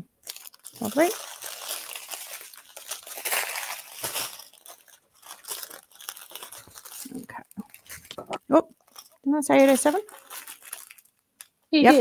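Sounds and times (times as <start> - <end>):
plastic bags crinkling: 0.2 - 12.0.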